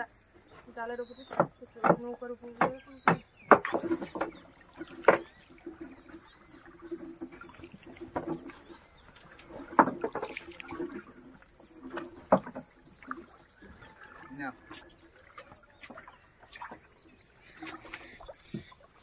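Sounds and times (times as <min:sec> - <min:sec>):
net weights knocking on hull: 0:01.2 - 0:05.8, 0:09.5 - 0:11.1.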